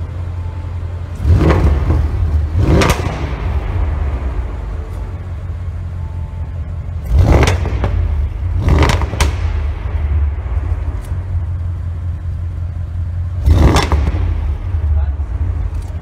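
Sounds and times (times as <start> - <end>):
car engine idling: 0.0 - 16.0
engine revving sharply: 1.2 - 4.5, 7.0 - 11.0, 13.4 - 15.0.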